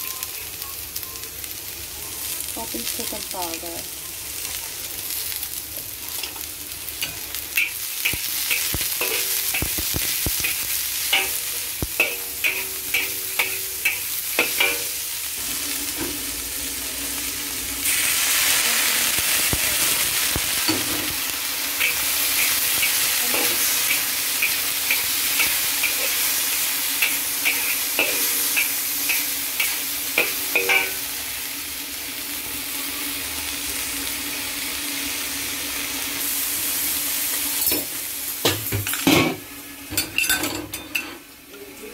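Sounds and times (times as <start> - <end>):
beans sizzling in a wok: 0.0 - 41.9.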